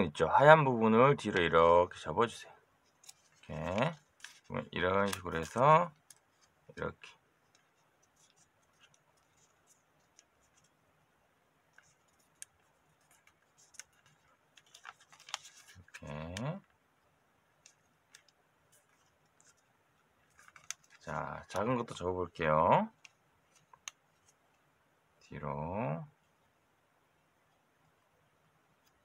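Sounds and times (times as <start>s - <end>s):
paper crinkling: 2.8s - 16.8s, 17.5s - 24.6s.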